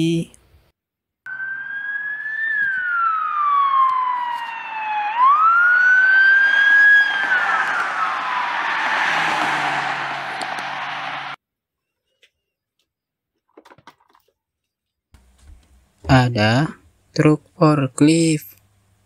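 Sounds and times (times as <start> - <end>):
car road noise: 1.3 - 11.4
police siren wailing: 1.3 - 11.4.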